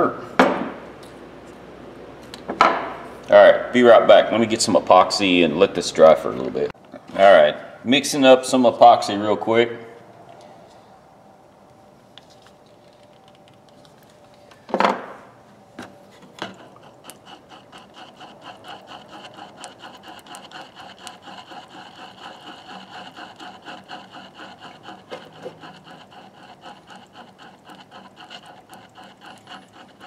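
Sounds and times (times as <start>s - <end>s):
screwdriver scraping on board: 16.1s - 30.0s.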